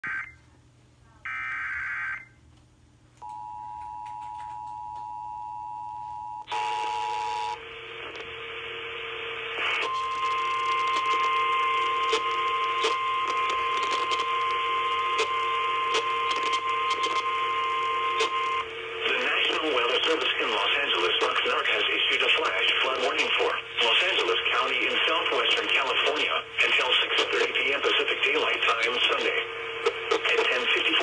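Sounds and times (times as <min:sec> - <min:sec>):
radio static crackling: 0:06.5 - 0:31.0
steady warning alarm tone: 0:09.7 - 0:20.2.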